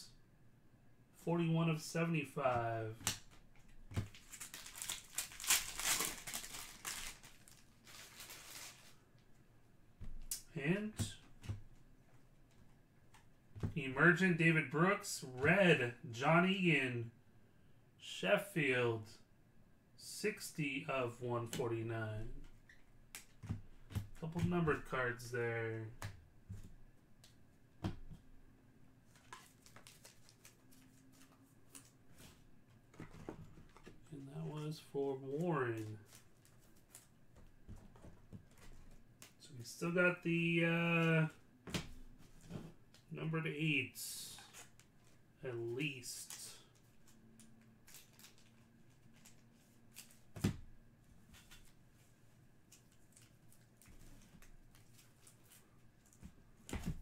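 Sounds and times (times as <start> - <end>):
trading cards clicking and rustling: 2.9 - 8.9
foil wrapper crinkling: 4.0 - 9.0, 29.2 - 31.9, 47.8 - 50.2.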